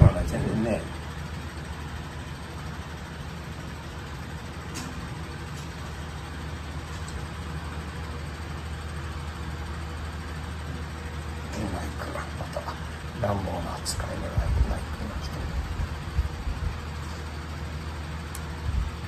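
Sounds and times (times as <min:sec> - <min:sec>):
air conditioner humming: 0:00.0 - 0:19.0.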